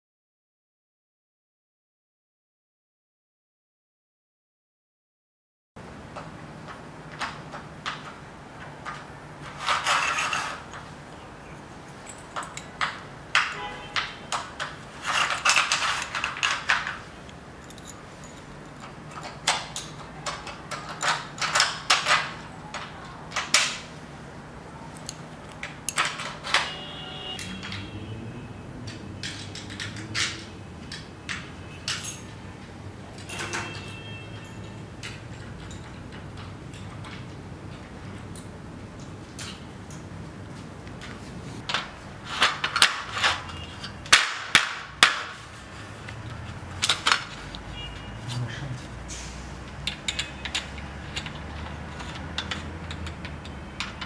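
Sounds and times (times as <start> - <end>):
metal bracket clicking and scraping: 7.8 - 11.0, 12.0 - 23.9, 41.6 - 47.8, 49.7 - 54.0.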